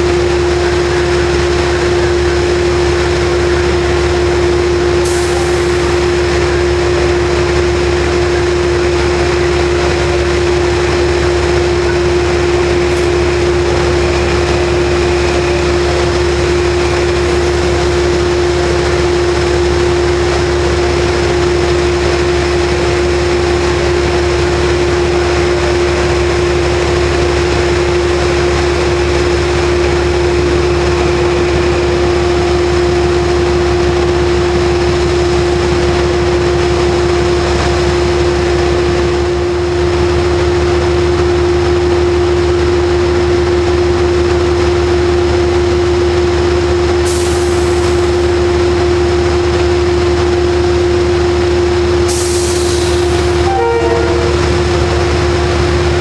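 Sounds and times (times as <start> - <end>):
diesel locomotive idling: 0.0 - 56.0
air hiss: 5.0 - 6.2, 52.1 - 53.4.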